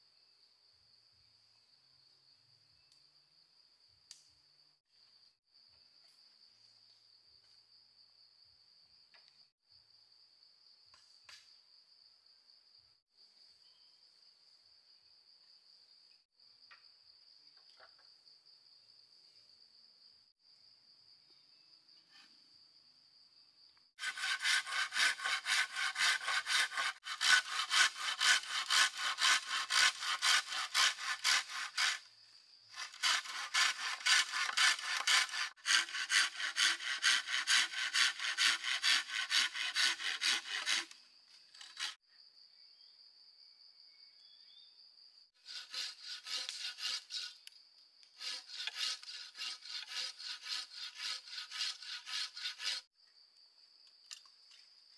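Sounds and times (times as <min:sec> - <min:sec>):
high insect trill: 0:04.5 - 0:54.9
hand saw cutting wood: 0:24.0 - 0:32.1, 0:32.7 - 0:42.0, 0:45.4 - 0:47.5, 0:48.1 - 0:52.9.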